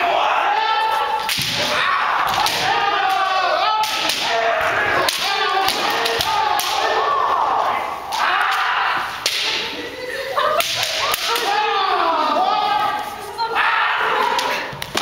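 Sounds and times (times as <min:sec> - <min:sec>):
players shouting: 0:00.0 - 0:15.0
sharp cracks: 0:01.2 - 0:07.0, 0:08.1 - 0:09.7
bamboo swords clacking: 0:01.2 - 0:07.1, 0:08.1 - 0:09.8, 0:10.5 - 0:11.7, 0:14.2 - 0:15.0.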